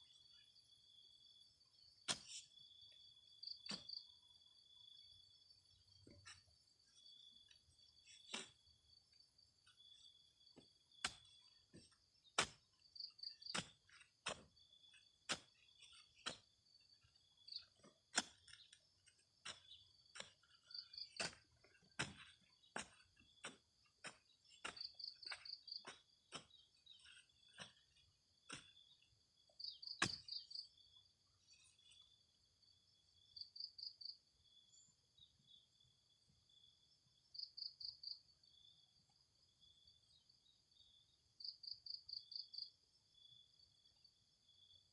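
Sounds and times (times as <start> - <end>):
hoe chopping into soil: 2.0 - 4.1, 5.9 - 9.0, 9.7 - 30.8
insects trilling: 6.9 - 31.1.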